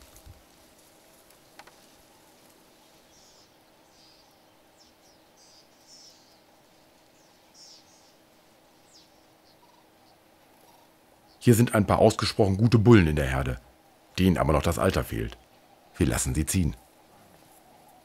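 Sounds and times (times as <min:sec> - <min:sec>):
faint high-pitched bird chirps: 0:08.8 - 0:11.4.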